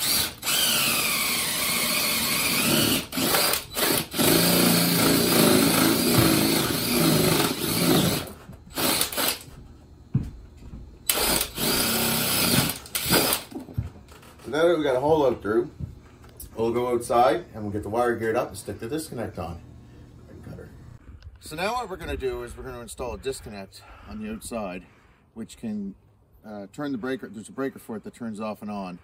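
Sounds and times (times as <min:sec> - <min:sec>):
cordless drill boring into wood: 0:00.0 - 0:09.5, 0:11.1 - 0:13.5.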